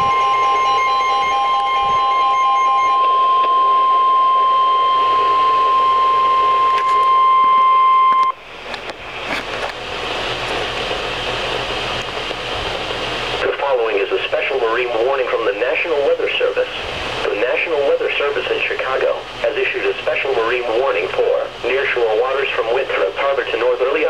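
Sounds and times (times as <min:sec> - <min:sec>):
pulsing beep: 0:00.0 - 0:08.4
steady warning alert tone: 0:00.0 - 0:08.5
radio hiss and static: 0:00.0 - 0:24.0.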